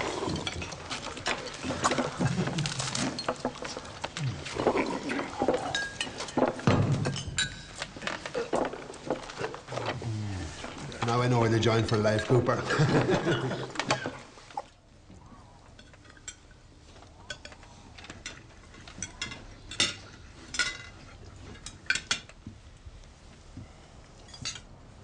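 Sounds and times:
cutlery clinking on plates: 0:17.2 - 0:22.4.

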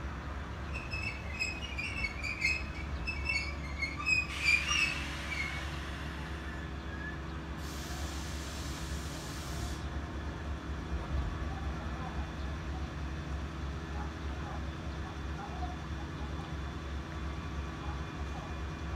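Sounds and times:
electric train rumbling: 0:00.0 - 0:18.9
short high squeaks: 0:00.6 - 0:06.0
hiss of air: 0:07.6 - 0:09.9.

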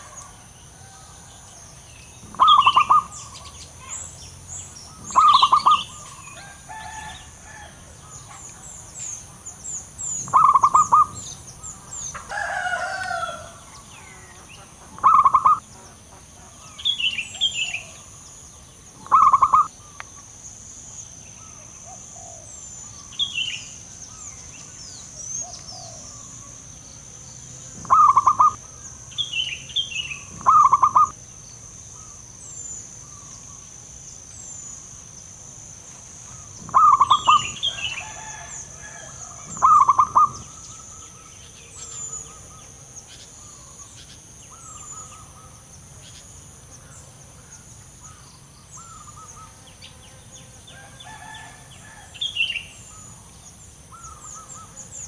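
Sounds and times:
insect drone: 0:00.0 - 0:55.0
small birds chirping: 0:00.0 - 0:55.0
dove cooing: 0:02.2 - 0:03.9, 0:04.9 - 0:08.4, 0:10.2 - 0:11.3, 0:12.2 - 0:15.8, 0:19.0 - 0:19.9, 0:21.4 - 0:22.6, 0:27.7 - 0:28.8, 0:30.0 - 0:31.2, 0:36.3 - 0:41.3.

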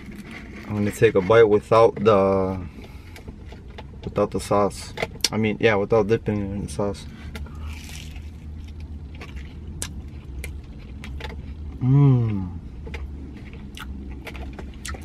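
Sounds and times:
person chewing: 0:00.0 - 0:00.9, 0:07.1 - 0:15.0
low rumble in truck cab: 0:00.0 - 0:15.0
person humming mmm: 0:11.8 - 0:12.6
mouth clicks and smacks: 0:13.6 - 0:15.0.

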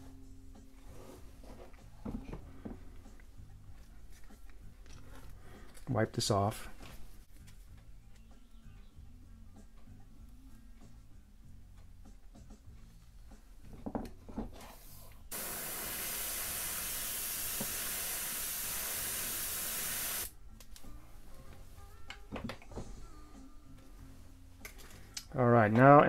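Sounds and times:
airbrush hissing: 0:15.3 - 0:20.3.

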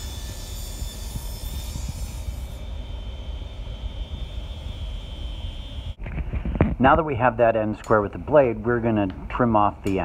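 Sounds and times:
table saw cutting plywood: 0:00.0 - 0:02.7.

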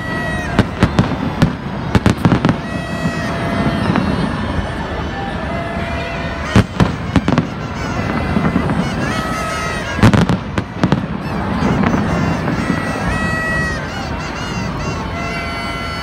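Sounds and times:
fireworks cracking: 0:00.0 - 0:15.0
crowd noise: 0:00.0 - 0:16.0.

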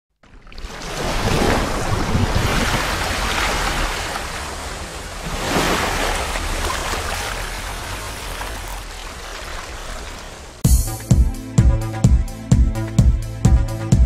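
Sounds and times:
rushing splashing water: 0:00.2 - 0:10.6.

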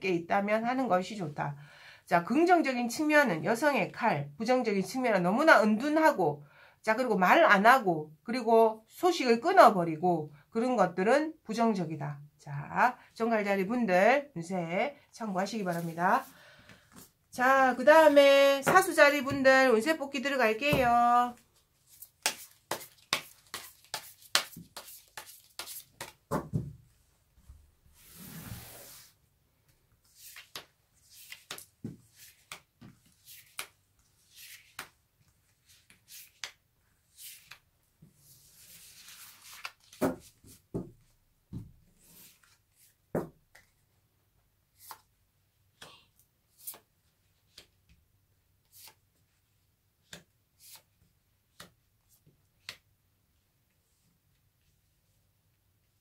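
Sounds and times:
cards shuffling snaps: 0:22.0 - 0:26.2, 0:33.4 - 0:33.8
cards sliding on cloth: 0:28.0 - 0:29.2, 0:30.0 - 0:34.9.

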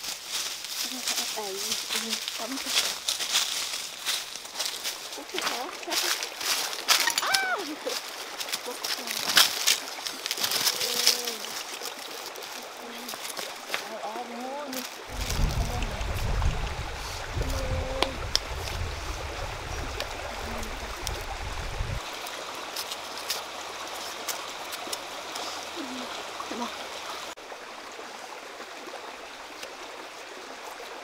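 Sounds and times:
stream water rushing: 0:00.0 - 0:31.0
low rumble: 0:15.1 - 0:22.0.

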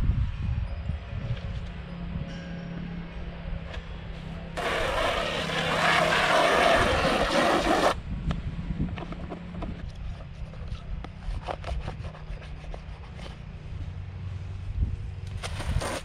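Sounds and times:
hose spraying water on plastic: 0:04.6 - 0:08.0.

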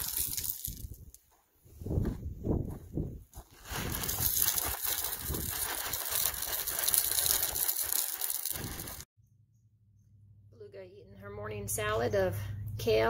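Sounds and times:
gravel pouring from bucket: 0:00.0 - 0:01.0, 0:03.6 - 0:09.1
footsteps crunching on gravel: 0:00.0 - 0:09.0.

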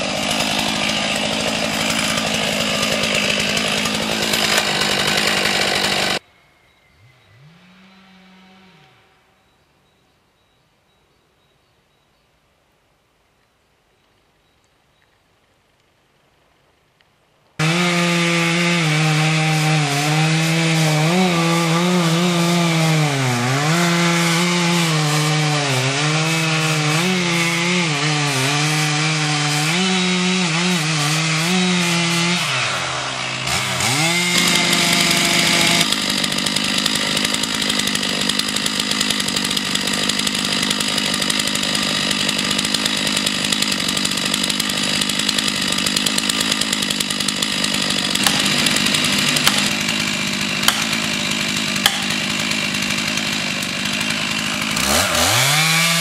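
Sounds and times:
chainsaw cutting wood: 0:00.0 - 0:06.2, 0:17.6 - 0:56.0.

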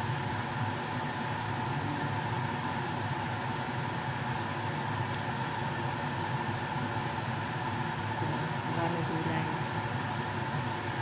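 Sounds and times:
machine hum and hiss: 0:00.0 - 0:11.0.

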